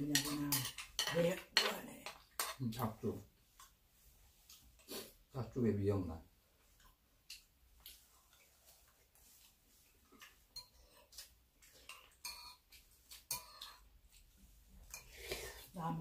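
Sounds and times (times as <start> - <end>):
spoons clinking on ceramic bowls: 0.0 - 2.7, 10.5 - 11.2, 11.8 - 13.9, 14.8 - 15.6.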